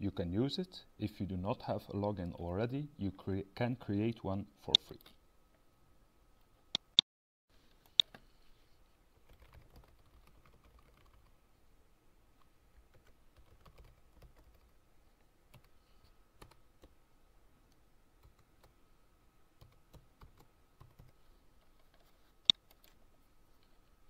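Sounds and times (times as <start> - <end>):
keyboard typing: 9.2 - 11.3, 12.9 - 14.8, 19.6 - 23.0.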